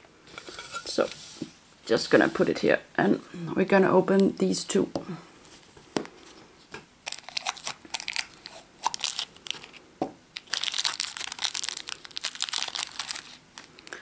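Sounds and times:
plastic wrapper crinkling: 0:07.0 - 0:14.0.

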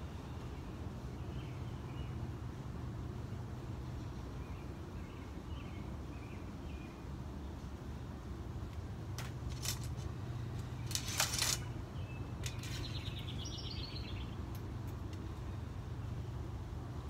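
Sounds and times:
steady low hum: 0:00.0 - 0:17.0
archery gear clicking and rustling: 0:09.2 - 0:11.7
bird singing falling trill: 0:11.6 - 0:14.4.

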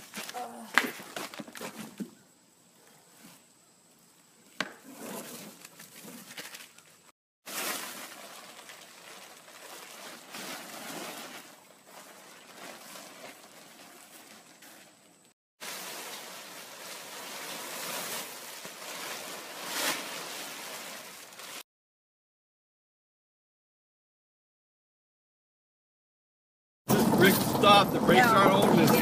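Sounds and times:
plastic tarp and husks rustling: 0:07.4 - 0:21.6.

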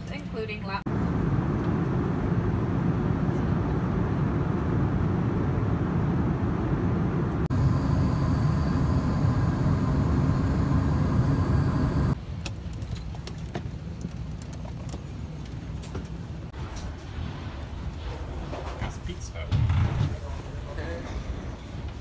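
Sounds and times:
airliner cabin engine drone: 0:00.9 - 0:12.2.

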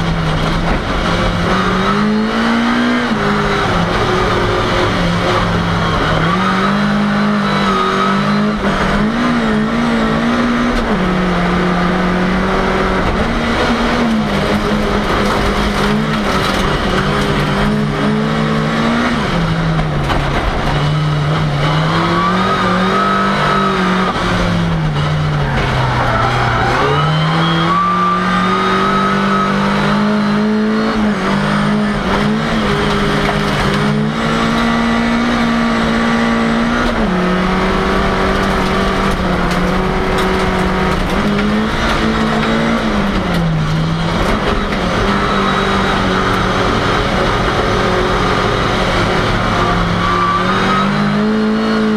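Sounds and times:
car engine racing: 0:00.0 - 0:51.9
tyre squeals: 0:24.9 - 0:29.6.

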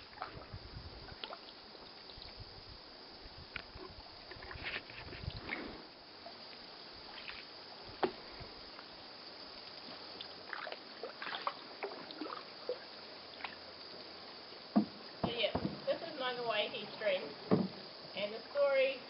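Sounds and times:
paddles dipping into water: 0:00.0 - 0:02.5, 0:09.6 - 0:17.9
water drips and splashes: 0:00.0 - 0:08.9, 0:09.6 - 0:16.6.

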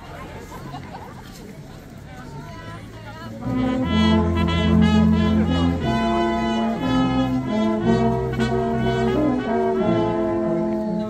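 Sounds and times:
brass band playing slow chords: 0:03.4 - 0:11.0.

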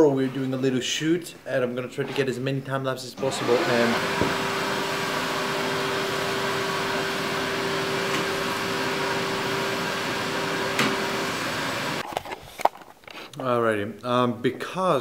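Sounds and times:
vacuum cleaner running: 0:03.2 - 0:12.0.

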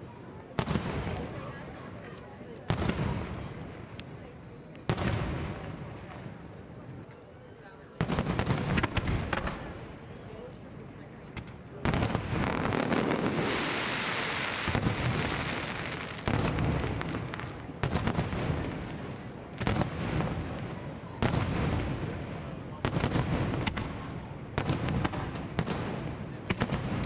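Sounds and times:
firework shells booming: 0:08.0 - 0:09.9, 0:11.3 - 0:27.0
crackle and hiss of stars: 0:13.2 - 0:24.0.

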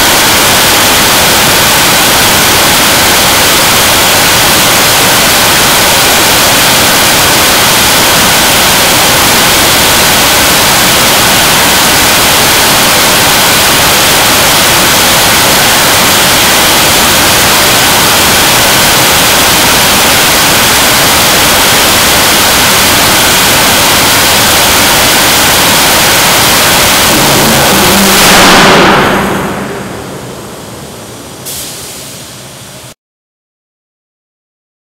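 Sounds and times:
rocket engine roaring: 0:22.8 - 0:31.6.

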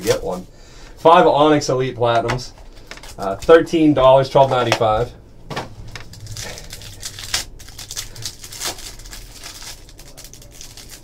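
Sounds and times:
plastic wrapper crinkling and tearing: 0:02.7 - 0:03.5, 0:05.9 - 0:11.0.

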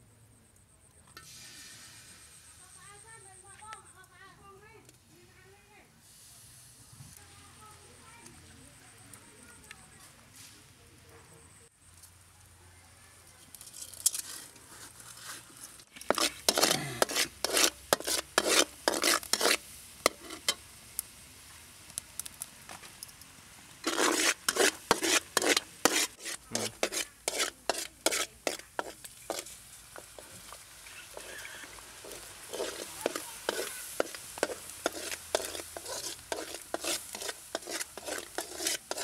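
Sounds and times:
fish sizzling in oil: 0:01.2 - 0:03.4, 0:06.0 - 0:09.4, 0:13.5 - 0:39.0
metal spatula scraping a wok: 0:13.5 - 0:20.6, 0:23.8 - 0:39.0.

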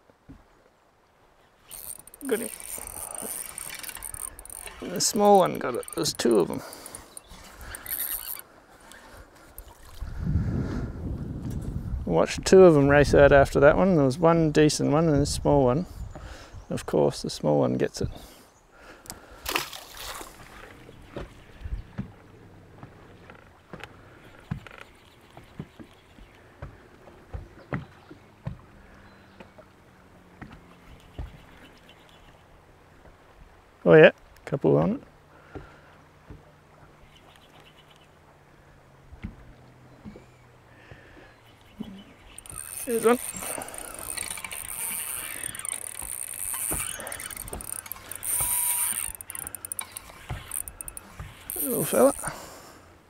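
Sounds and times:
faint water wash: 0:00.9 - 0:10.9
spinning reel winding: 0:01.7 - 0:08.4, 0:42.4 - 0:52.3
waves slapping boat hull: 0:19.2 - 0:31.8.

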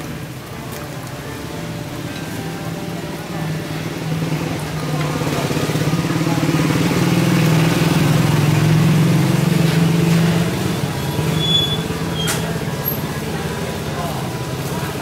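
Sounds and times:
engine humming: 0:00.0 - 0:15.0.

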